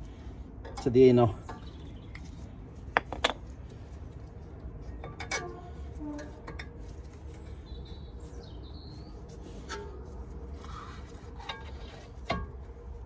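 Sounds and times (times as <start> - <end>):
bird chirping: 1.5 - 2.4, 7.4 - 9.3.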